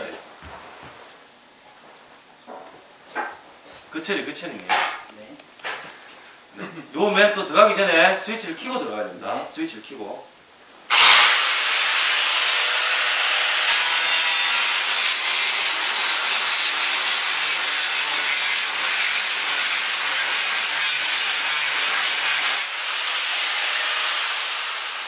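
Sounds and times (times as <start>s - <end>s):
angle grinder grinding steel: 10.9s - 25.0s.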